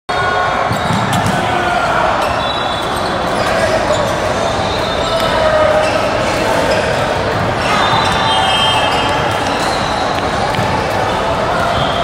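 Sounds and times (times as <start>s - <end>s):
volleyballs hit and bouncing: 0.7s - 1.7s, 5.2s - 12.0s.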